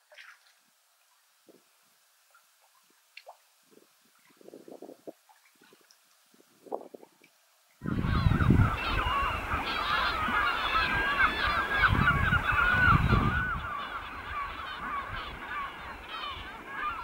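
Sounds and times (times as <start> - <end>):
wind rumble on microphone: 3.7 - 16.8
flock of birds chattering: 7.8 - 17.0.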